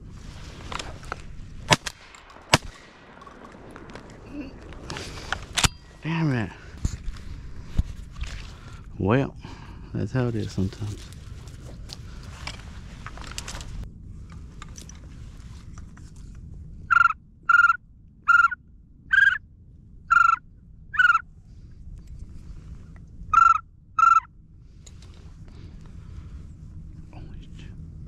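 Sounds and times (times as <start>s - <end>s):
duck call quacks: 16.9s - 19.4s, 20.1s - 20.4s, 23.4s - 24.3s.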